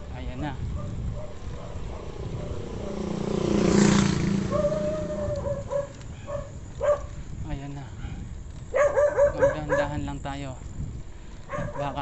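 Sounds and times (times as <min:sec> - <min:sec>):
motorcycle passing by: 0:00.7 - 0:07.2.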